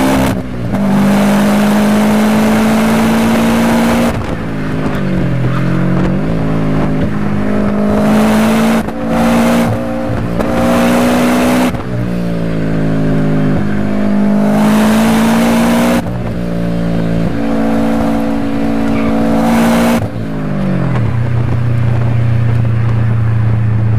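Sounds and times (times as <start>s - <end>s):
car engine accelerating through gears: 0.0s - 23.9s.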